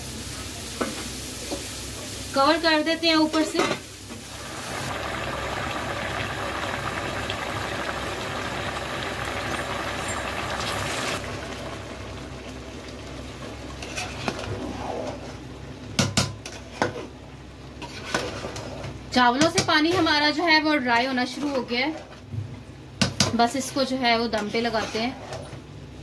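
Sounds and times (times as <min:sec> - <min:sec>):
broth bubbling in metal pot: 0:03.4 - 0:15.4.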